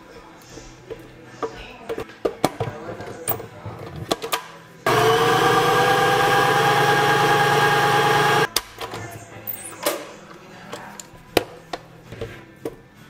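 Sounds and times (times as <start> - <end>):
blender motor running: 4.9 - 8.5.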